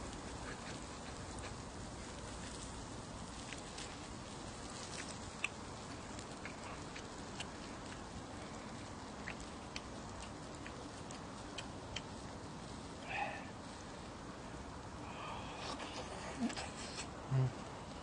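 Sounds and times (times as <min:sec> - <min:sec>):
meat sizzling on a griddle: 0:00.0 - 0:14.2
fat spitting pops: 0:15.6 - 0:17.5.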